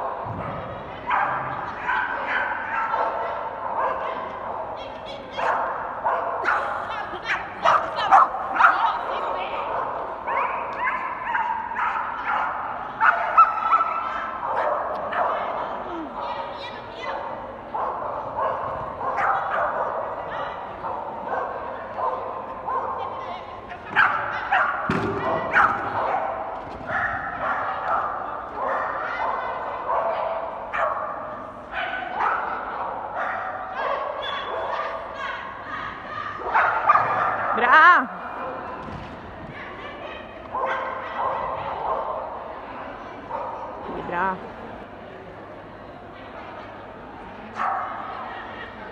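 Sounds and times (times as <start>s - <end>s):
dog barking and yipping: 7.3s - 9.0s.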